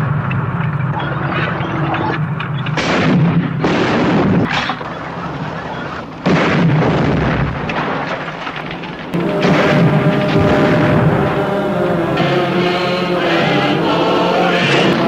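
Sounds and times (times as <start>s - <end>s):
artillery blasts: 2.7s - 12.2s
low rumble: 9.2s - 15.0s.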